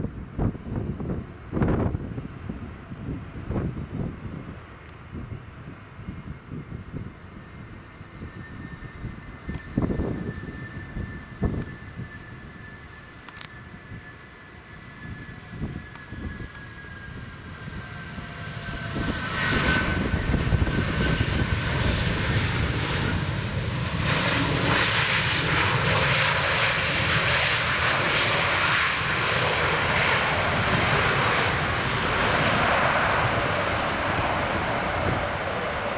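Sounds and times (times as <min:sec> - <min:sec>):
jet engine roar: 0:00.0 - 0:35.9.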